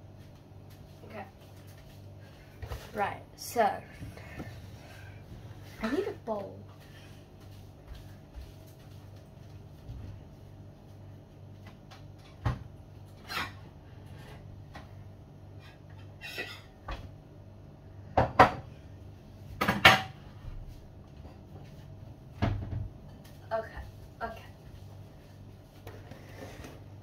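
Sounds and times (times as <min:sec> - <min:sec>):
dishes clinking and clattering: 0:15.9 - 0:16.9.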